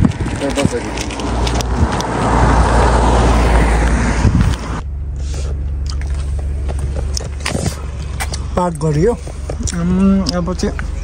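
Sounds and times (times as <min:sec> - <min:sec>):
car passing on wet road: 0:01.0 - 0:04.8
steady low hum: 0:03.7 - 0:11.0.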